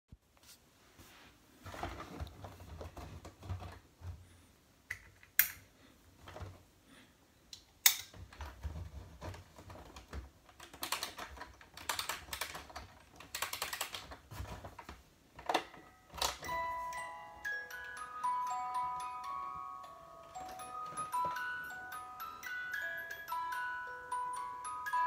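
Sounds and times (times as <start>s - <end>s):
ratcheting plastic clicks: 9.2s - 14.2s.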